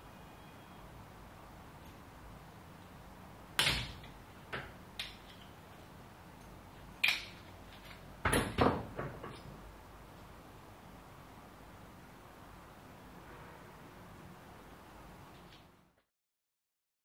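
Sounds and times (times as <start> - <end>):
hand rivet tool clacks and snaps: 3.6 - 5.6, 6.4 - 8.1.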